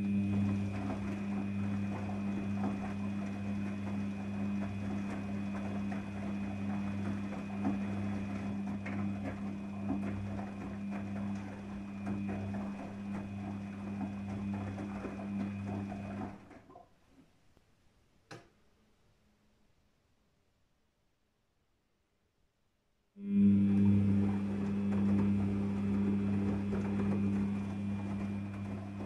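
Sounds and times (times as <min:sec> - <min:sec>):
washing machine motor humming: 0:00.0 - 0:16.9, 0:23.2 - 0:29.0
wet laundry tumbling and splashing: 0:00.0 - 0:16.9, 0:23.9 - 0:29.0.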